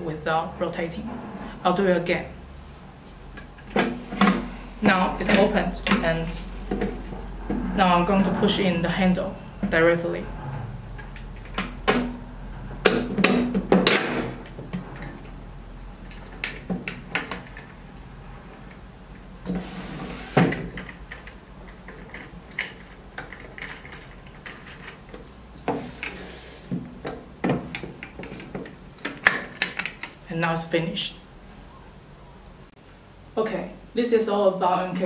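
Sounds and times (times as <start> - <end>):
metal scraping: 0.8 - 2.8, 3.5 - 18.7, 19.4 - 26.8.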